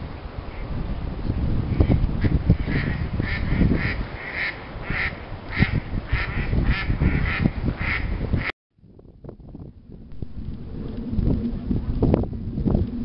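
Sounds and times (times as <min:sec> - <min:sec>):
ducks quacking: 0:01.8 - 0:08.5
low rumble: 0:07.5 - 0:13.0.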